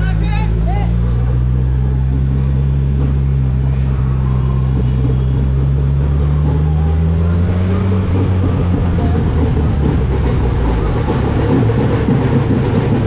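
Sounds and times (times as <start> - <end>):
motorcycle engine cruising: 0.0 - 13.0
road noise: 0.0 - 13.0.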